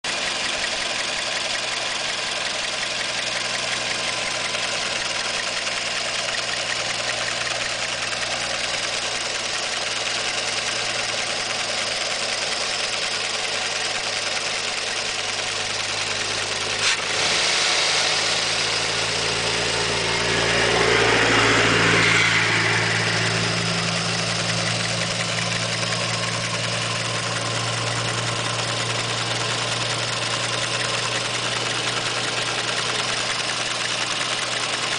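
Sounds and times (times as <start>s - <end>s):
car engine idling: 0.0s - 34.9s.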